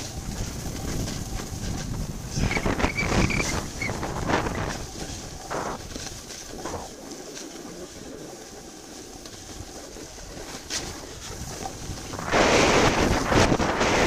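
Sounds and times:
sliding over packed snow: 0.0s - 14.0s
wind rushing over microphone: 0.0s - 14.0s.

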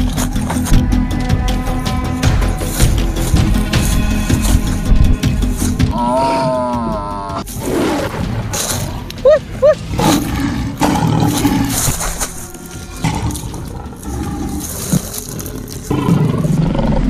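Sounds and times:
lion growling and roaring: 5.8s - 17.0s.

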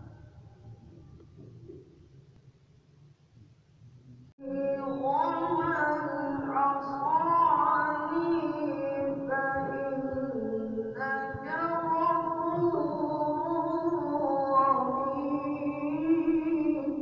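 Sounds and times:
person reciting melodically: 4.4s - 17.0s.

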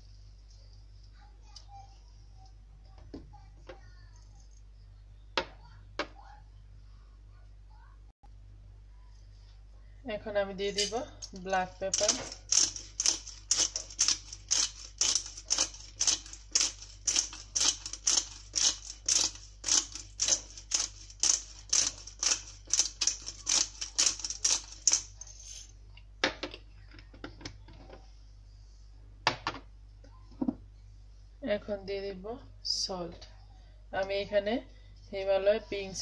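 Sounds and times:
pepper mill grinding: 10.7s - 25.7s.

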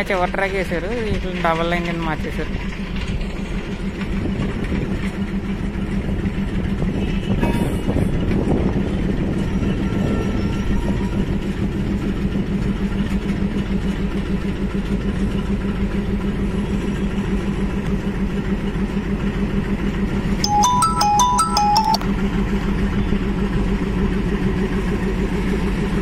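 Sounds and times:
diesel locomotive engine humming: 0.0s - 15.3s
train wagons rumbling on track: 0.0s - 20.2s
electronic chime tune: 20.4s - 22.0s.

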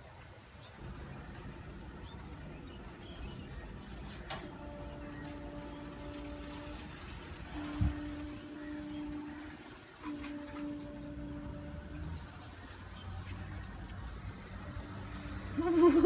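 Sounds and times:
distant car engine rumble: 0.4s - 16.0s
bird chirps: 2.0s - 4.3s.

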